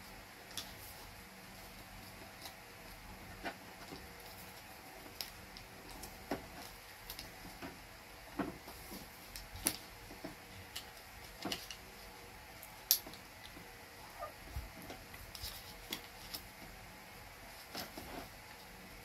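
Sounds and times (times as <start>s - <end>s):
paper folding and crinkling: 14.5s - 16.8s, 17.5s - 18.5s.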